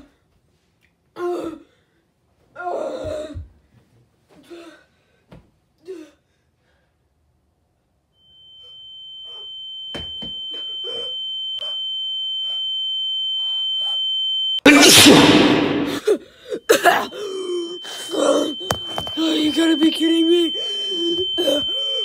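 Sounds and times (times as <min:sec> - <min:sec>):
high-pitched ringing tone: 0:08.2 - 0:14.6, 0:15.6 - 0:22.0
brief vocal sounds: 0:14.7 - 0:16.2.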